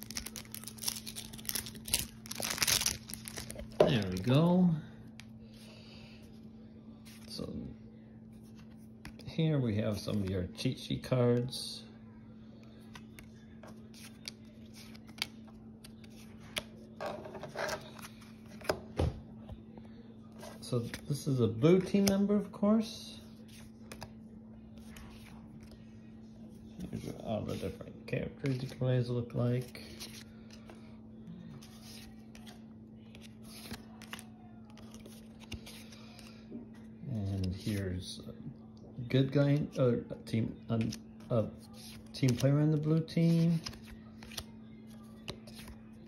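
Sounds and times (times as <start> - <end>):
low steady hum: 0.0 - 46.0
cards flipping and sliding: 12.8 - 18.8, 31.6 - 36.3, 41.6 - 44.5, 45.2 - 45.8
cards sliding rustle: 31.6 - 36.3.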